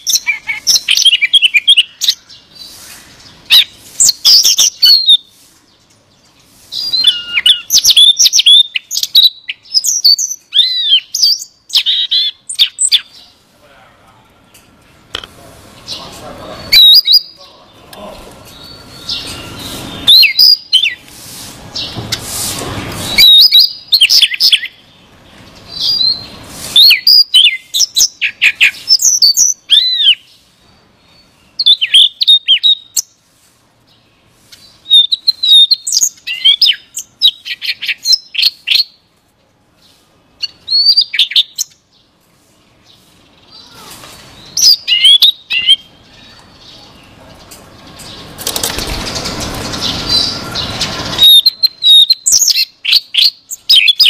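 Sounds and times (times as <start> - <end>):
bird singing whistled notes: 6.7 - 13.3, 18.5 - 21.0, 25.7 - 30.4, 31.1 - 33.1, 34.7 - 39.0, 40.4 - 41.8, 44.4 - 46.4, 49.2 - 54.0
broad rushing noise: 17.4 - 24.0, 24.8 - 27.0, 46.6 - 51.4.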